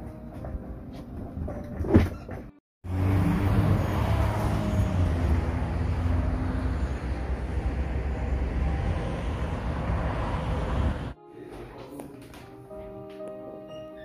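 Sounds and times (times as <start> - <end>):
traffic rumble: 2.9 - 11.2.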